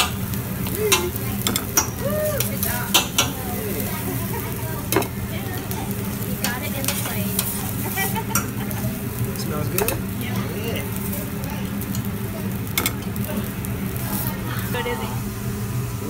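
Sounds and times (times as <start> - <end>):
rice sizzling on a griddle: 0.0 - 16.0
metal spatula scraping and clacking: 6.5 - 8.6.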